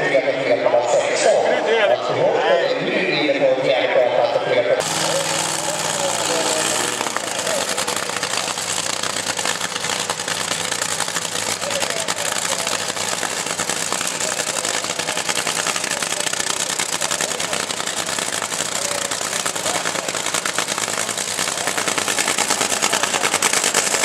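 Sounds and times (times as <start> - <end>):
dragster engine idling: 4.8 - 24.0.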